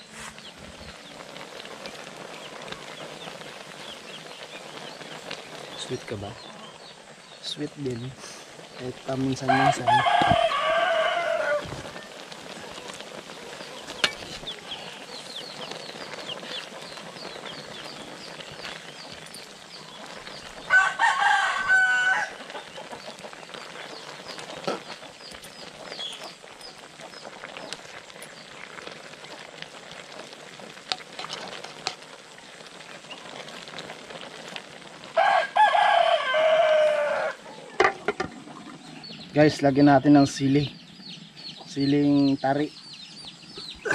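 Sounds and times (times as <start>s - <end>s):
faint steady hiss: 0.0s - 43.9s
rooster crowing: 9.4s - 12.0s, 20.6s - 22.4s, 35.2s - 37.6s.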